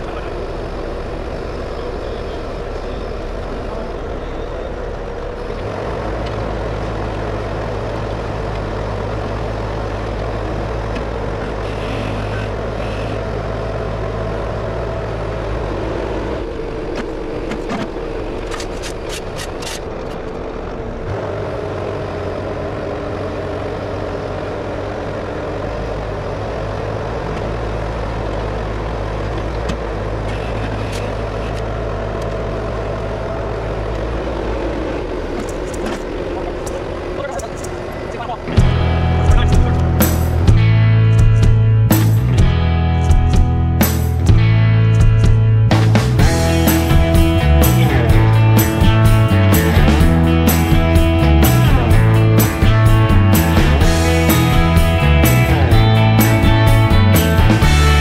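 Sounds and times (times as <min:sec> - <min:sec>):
diesel engine running: 0:00.0 - 0:58.0
rapid rattle: 0:33.9 - 0:58.0.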